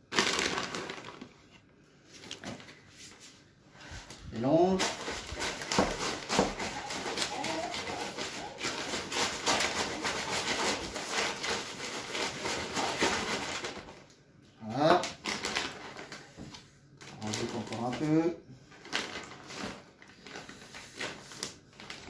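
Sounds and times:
seeds rattling in bag: 0.0s - 1.4s
plastic bags crinkling: 0.0s - 1.6s, 4.4s - 14.1s, 14.8s - 16.4s, 17.0s - 22.0s.

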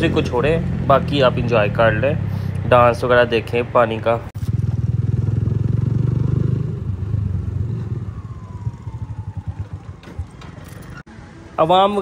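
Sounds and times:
motorcycle engine running: 4.4s - 11.1s.

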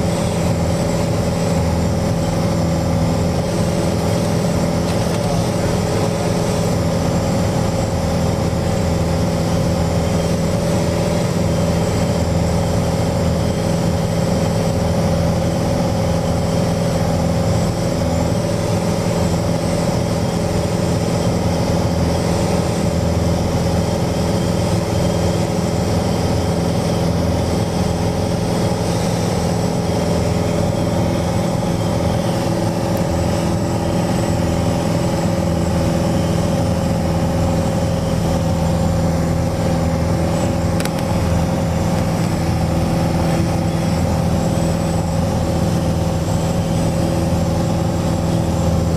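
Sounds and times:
airplane engine and propeller: 0.0s - 48.9s.

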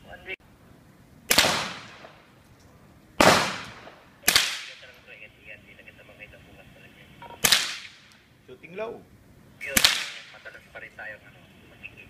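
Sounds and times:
rifle shots with echo: 1.3s - 2.3s, 3.2s - 5.0s, 7.4s - 8.1s, 9.7s - 10.4s.

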